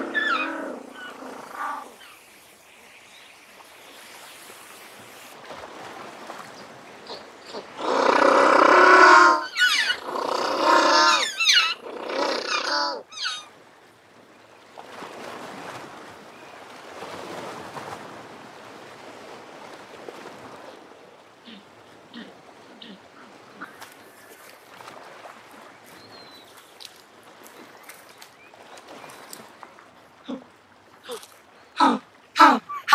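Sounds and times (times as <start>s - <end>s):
penguin braying: 7.8s - 13.4s, 31.8s - 32.9s.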